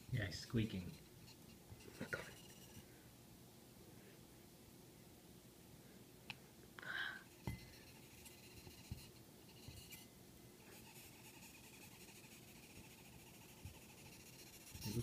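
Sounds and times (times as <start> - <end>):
insect squeaking and scratching: 0.0 - 2.8, 7.3 - 10.1, 10.7 - 15.0.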